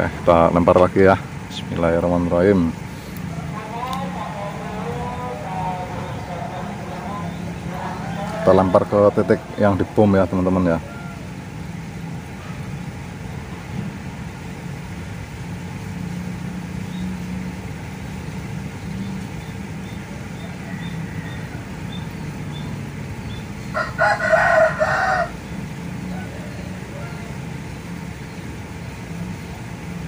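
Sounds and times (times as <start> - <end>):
distant traffic rumble: 0.0 - 30.0
rooster crowing: 3.2 - 12.6, 19.8 - 28.1.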